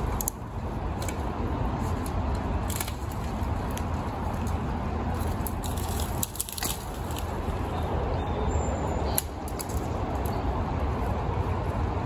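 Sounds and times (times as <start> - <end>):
twigs cracking and snapping: 0.0 - 7.8, 9.1 - 10.4.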